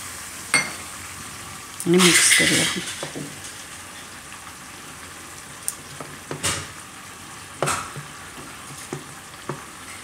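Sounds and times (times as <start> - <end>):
chutney sizzling in a pan: 0.0 - 10.0
spoon clinking bowl: 0.6 - 0.8.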